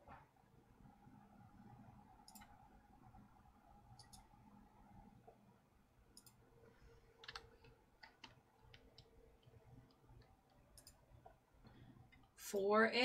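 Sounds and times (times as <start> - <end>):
mouse and keyboard clicks: 2.2 - 2.5, 4.0 - 4.3, 6.1 - 6.4, 7.2 - 11.4.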